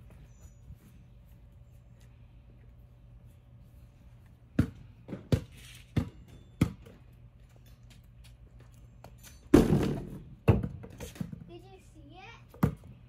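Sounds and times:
basketball bouncing on pavers: 0:04.4 - 0:07.2, 0:09.0 - 0:11.5, 0:12.5 - 0:13.0.

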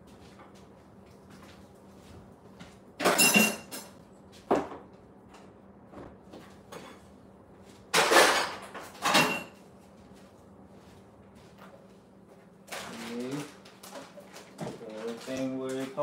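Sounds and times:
kitchen things knocking and banging: 0:03.0 - 0:04.9, 0:07.9 - 0:09.6.

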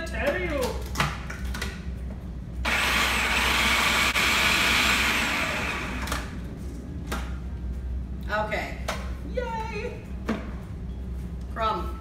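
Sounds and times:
food processor motor grinding: 0:02.7 - 0:06.3.

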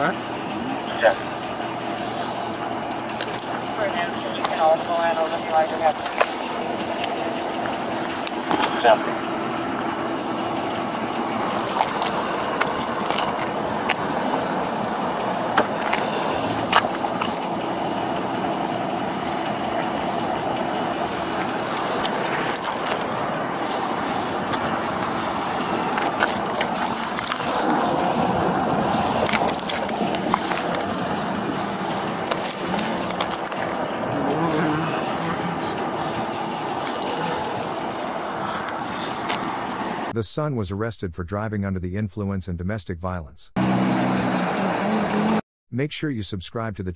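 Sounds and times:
metal jingling: 0:00.0 - 0:08.9, 0:11.2 - 0:28.2, 0:28.8 - 0:40.1
steady background hum: 0:00.0 - 0:40.1
sharp metallic clicks: 0:02.8 - 0:04.6
clothing rustling against microphone: 0:24.5 - 0:27.8.

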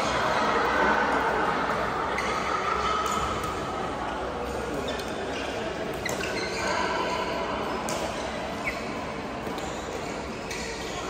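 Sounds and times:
indoor hall background din: 0:00.0 - 0:11.0
racket hitting shuttlecock: 0:02.8 - 0:03.7, 0:07.8 - 0:08.3, 0:09.4 - 0:11.0.

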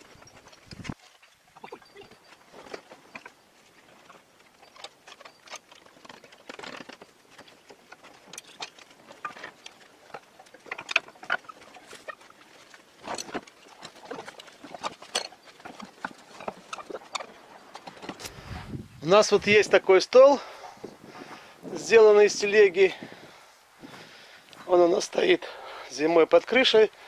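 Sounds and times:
cart knocking and clattering: 0:03.9 - 0:18.4.

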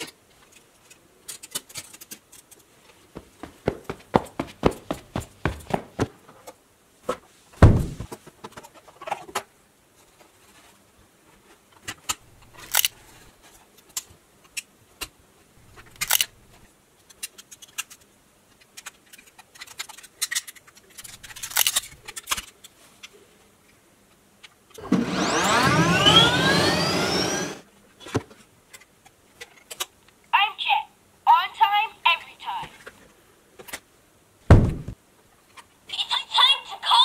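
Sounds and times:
loud knock: 0:07.6 - 0:08.1, 0:34.5 - 0:35.0
plastic toy clicks and rattles: 0:12.1 - 0:13.0, 0:15.8 - 0:16.3, 0:17.0 - 0:22.7.

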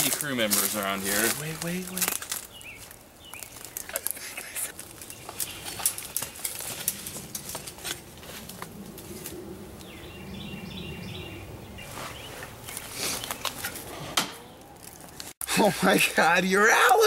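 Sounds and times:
rustling and snapping undergrowth: 0:00.0 - 0:10.0, 0:11.8 - 0:15.5.

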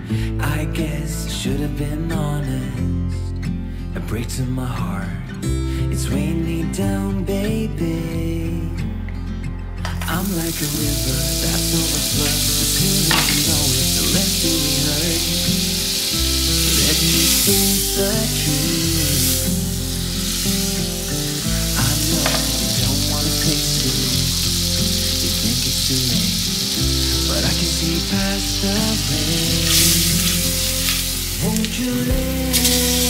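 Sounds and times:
butter sizzling in a pot: 0:10.1 - 0:33.0.

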